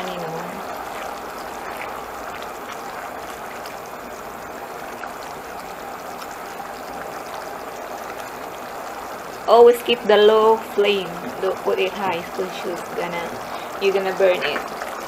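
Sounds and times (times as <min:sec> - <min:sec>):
sauce bubbling in a pan: 0:00.0 - 0:15.0
spatula stirring: 0:00.1 - 0:06.4.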